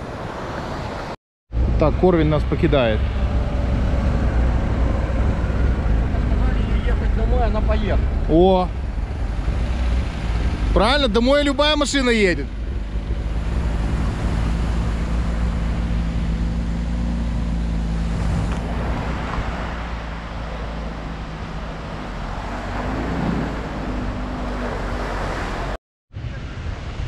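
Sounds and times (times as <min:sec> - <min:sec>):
sea surf: 0:00.0 - 0:01.2, 0:17.9 - 0:27.0
wind: 0:00.0 - 0:27.0
car engine idling: 0:01.6 - 0:18.0.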